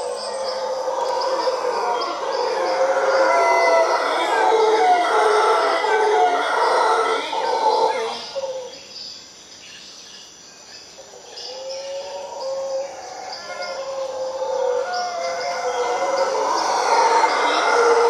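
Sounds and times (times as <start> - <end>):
howler monkeys howling: 0.0 - 8.9, 11.0 - 18.0
birds chirping: 0.0 - 18.0.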